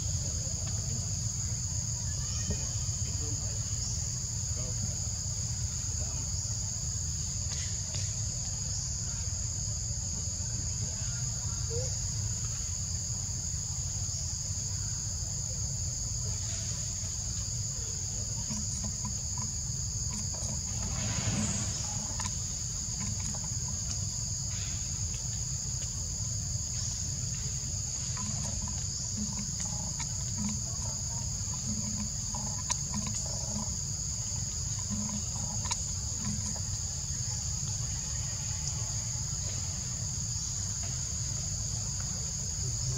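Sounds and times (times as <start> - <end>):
high-pitched insect chorus: 0.0 - 42.9
low background rumble: 15.8 - 39.4.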